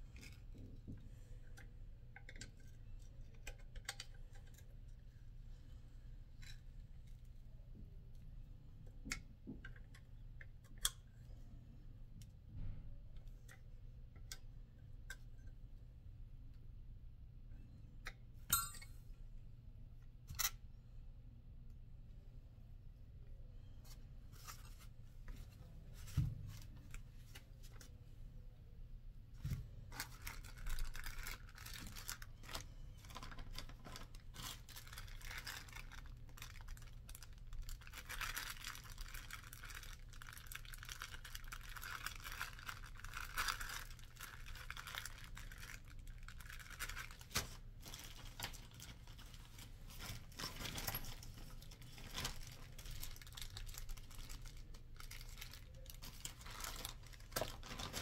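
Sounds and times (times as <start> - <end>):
low steady hum: 0.0 - 58.0
plastic bag crinkling: 29.9 - 58.0.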